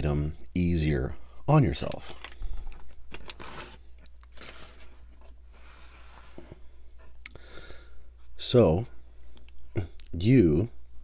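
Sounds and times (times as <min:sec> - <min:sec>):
paper wrapper rustling: 0:01.8 - 0:05.4.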